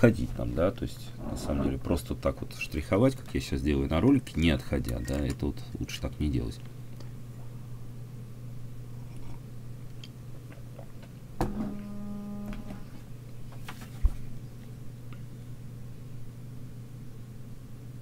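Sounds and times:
low hum: 0:06.7 - 0:13.4
brief steady tone: 0:11.7 - 0:12.8.

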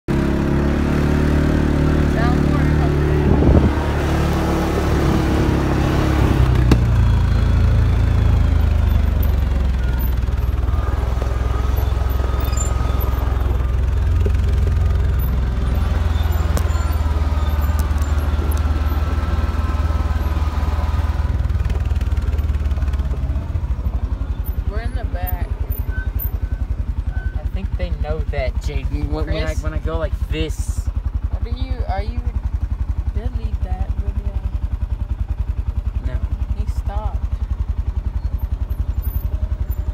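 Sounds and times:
atv engine droning: 0:00.1 - 0:39.9
wind: 0:00.1 - 0:39.9
rattle: 0:38.3 - 0:39.9.

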